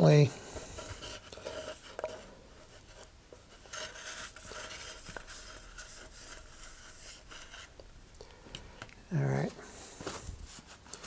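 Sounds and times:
wooden dowel scraping inside paper tube: 0:00.7 - 0:07.8.

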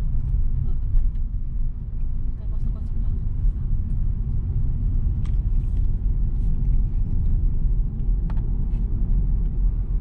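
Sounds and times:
car engine low rumble: 0:00.0 - 0:10.0
tyres on road: 0:00.0 - 0:10.0.

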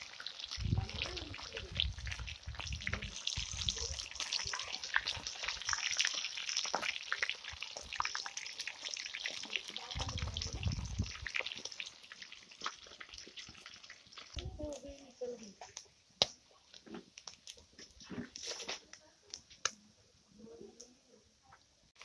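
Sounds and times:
fish sizzling in hot oil: 0:00.0 - 0:19.8
low rumbles: 0:10.0 - 0:11.3.

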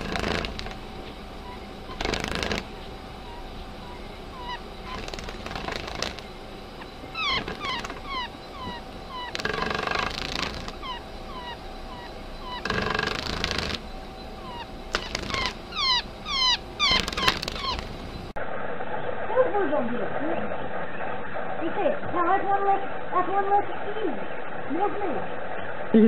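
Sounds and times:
squeaky animal calls: 0:00.0 - 0:00.8, 0:01.4 - 0:18.1
burst of rough noise: 0:00.0 - 0:01.0, 0:01.9 - 0:02.8, 0:04.8 - 0:06.3.

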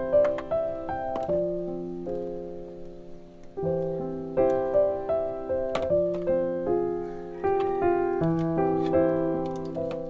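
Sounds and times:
calm piano music: 0:00.0 - 0:10.0.

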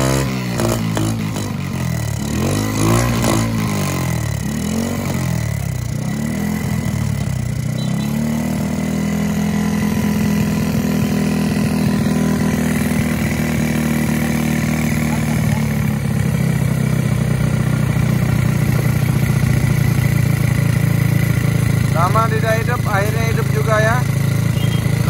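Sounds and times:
motorcycle engine revving and idling: 0:00.0 - 0:25.0.

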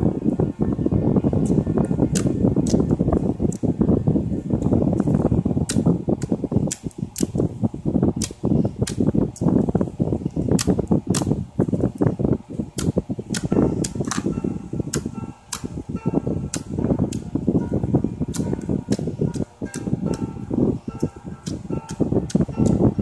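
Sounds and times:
slime squelching: 0:04.6 - 0:15.9.

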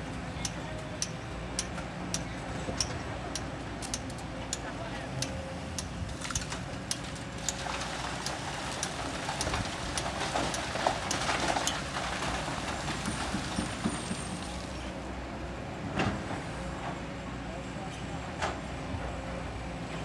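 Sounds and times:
sand and stones rattling down chute: 0:07.5 - 0:14.8.

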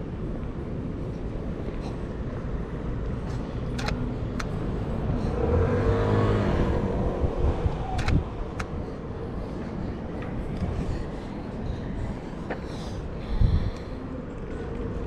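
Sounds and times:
steady low traffic rumble: 0:00.0 - 0:15.0
sharp clicks: 0:03.7 - 0:04.6, 0:08.0 - 0:08.8
car passing close by: 0:05.0 - 0:08.3.

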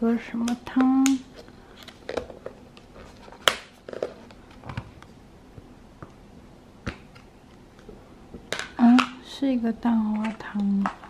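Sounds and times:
lid clicks and crinkles: 0:01.8 - 0:05.0.

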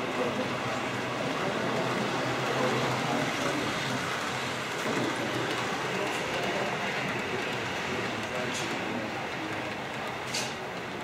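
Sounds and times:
model train wheels rolling on rails: 0:00.0 - 0:11.0.

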